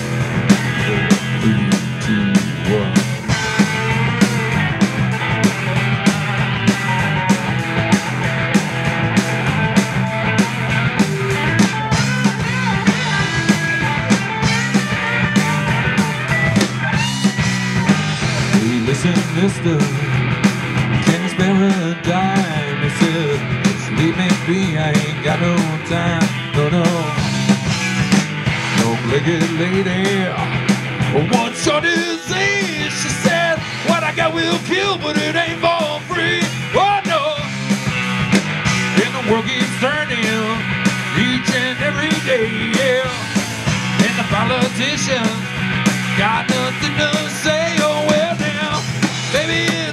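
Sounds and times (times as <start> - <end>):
lead guitar bending pitch: 0.0 - 23.8
rock band playing instrumental jam: 0.0 - 49.9.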